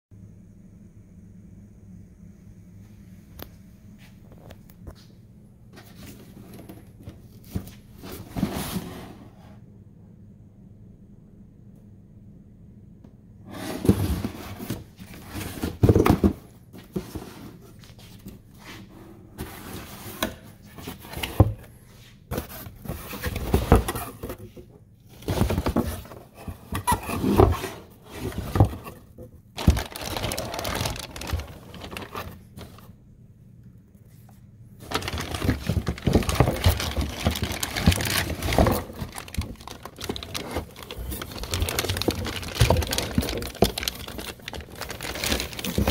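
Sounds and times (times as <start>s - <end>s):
cardboard box rustling: 5.8s - 9.2s, 13.5s - 18.3s, 22.3s - 32.9s, 34.8s - 45.9s
plastic bag crinkling: 29.6s - 32.8s, 34.8s - 45.9s.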